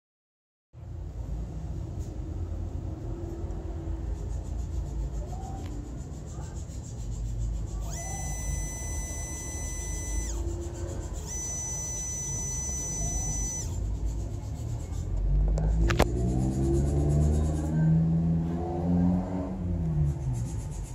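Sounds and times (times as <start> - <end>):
stepper motor whining: 7.6 - 13.9.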